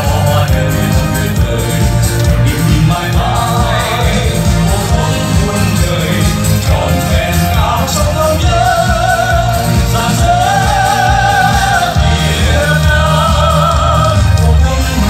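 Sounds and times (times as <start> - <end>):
heavy pulsing bass: 0.0 - 15.0
person singing with vibrato: 0.0 - 15.0.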